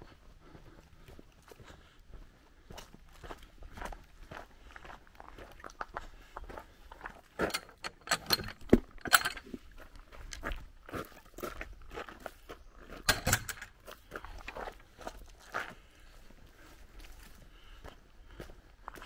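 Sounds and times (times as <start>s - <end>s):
footsteps on gravel: 0.0s - 7.8s, 8.7s - 19.0s
gate latch clicking and knocking: 7.5s - 9.5s, 13.0s - 13.7s.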